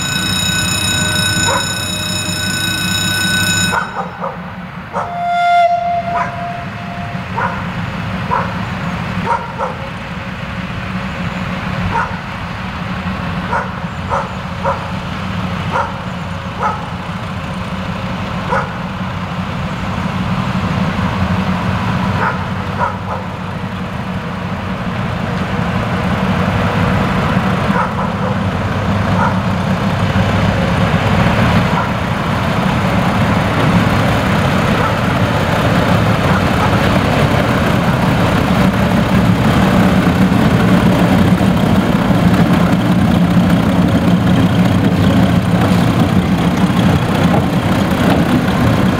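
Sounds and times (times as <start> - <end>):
diesel locomotive engine hum: 0.0 - 48.9.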